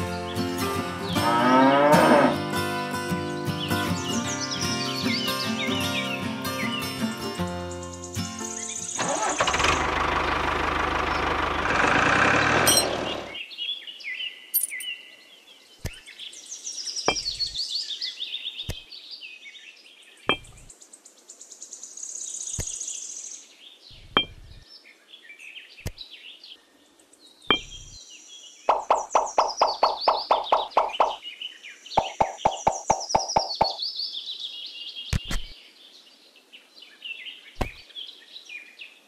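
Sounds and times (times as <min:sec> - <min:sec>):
birds chirping: 0:00.0 - 0:39.0
toy tractor motor running: 0:09.0 - 0:13.4.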